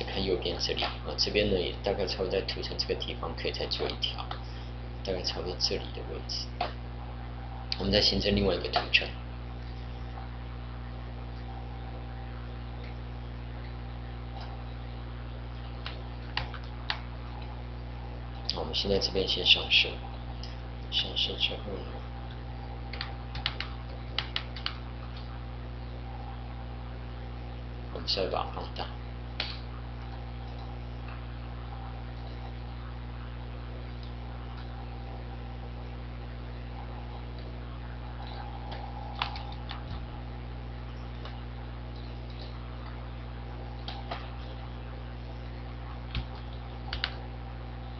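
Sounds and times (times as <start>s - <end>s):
electrical hum with hiss: 0.0s - 47.9s
faint clicks: 22.3s - 25.3s.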